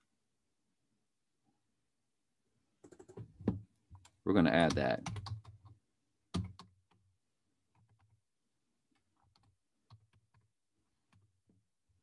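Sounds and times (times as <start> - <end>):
typing on computer keyboard: 4.0 - 7.0, 9.0 - 10.5.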